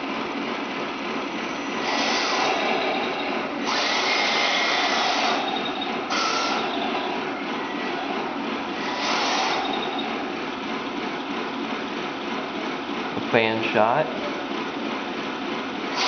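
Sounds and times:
toy tank motors whining: 1.7 - 10.2.

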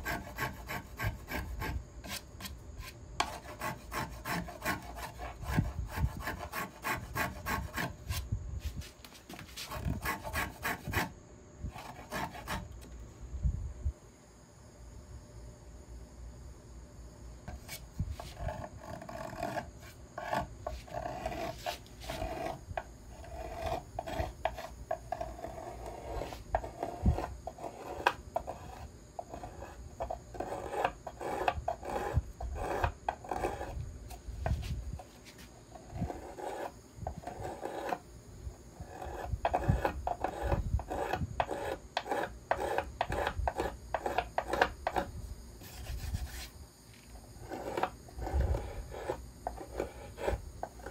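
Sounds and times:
hand plane shaving wood: 0.0 - 8.2, 9.2 - 11.1, 11.8 - 12.7, 17.7 - 22.6, 23.2 - 29.7, 30.3 - 33.8, 35.3 - 38.0, 38.9 - 45.1.

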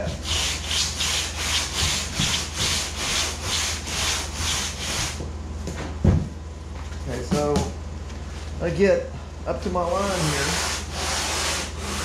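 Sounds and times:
sanding board scraping foam: 0.0 - 5.2, 9.9 - 12.0.

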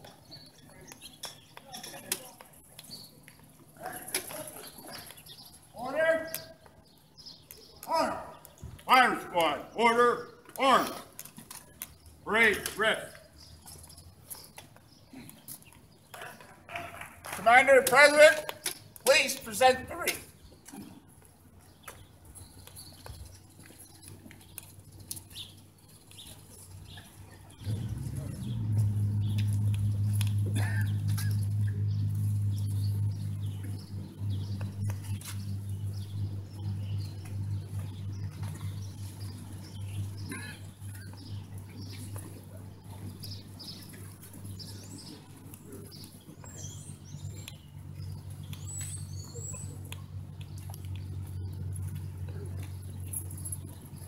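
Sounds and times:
footsteps on pavement: 0.0 - 54.0
small birds chirping: 0.0 - 54.0
steady low hum: 25.7 - 54.0.

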